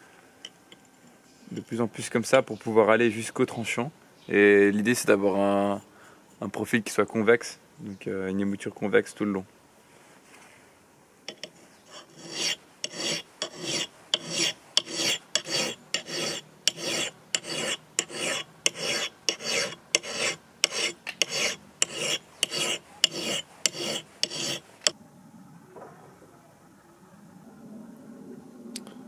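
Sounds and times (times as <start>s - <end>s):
hand file rasping on steel: 11.3s - 24.9s.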